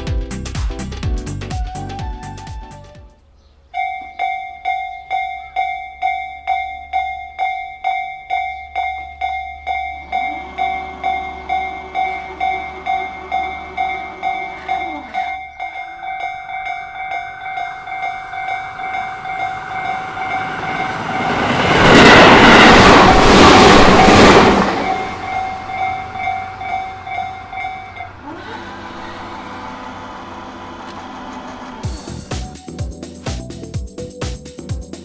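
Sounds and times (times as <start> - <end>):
level crossing bell ringing: 3.8 - 21.5, 24.8 - 28.2
electric train rushing through: 9.6 - 32.6
barrier motors humming: 10.0 - 21.1, 22.9 - 32.3.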